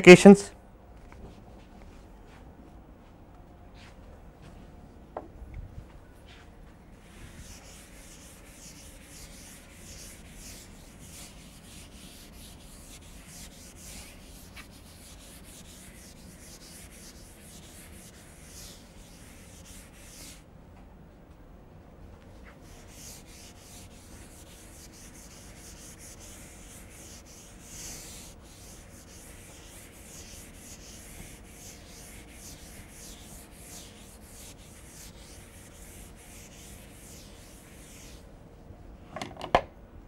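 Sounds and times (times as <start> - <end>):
eraser swishing on chalkboard: 6.3 - 20.5, 22.3 - 38.3.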